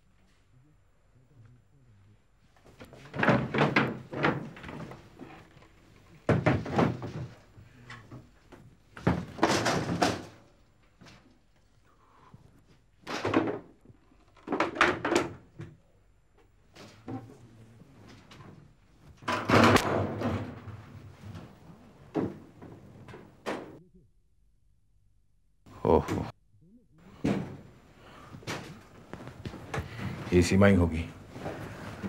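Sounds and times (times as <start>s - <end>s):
cupboard doors and drawers banging: 2.8s - 8.3s, 8.9s - 10.4s, 13.1s - 13.8s, 18.2s - 23.8s, 27.1s - 30.4s
furniture being knocked about: 2.9s - 5.5s, 6.2s - 7.6s, 9.0s - 10.4s, 19.1s - 23.8s.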